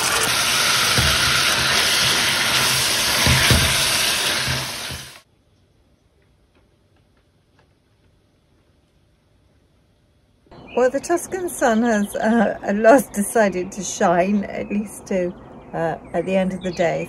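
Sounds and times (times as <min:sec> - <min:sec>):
food sizzling in a frying pan: 0:00.0 - 0:05.2.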